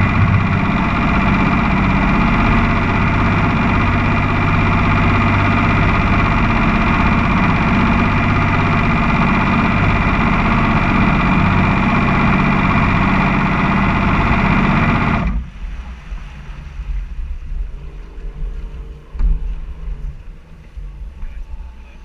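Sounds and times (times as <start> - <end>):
powerboat engine running: 0.0 - 22.0
water noise: 0.0 - 22.0.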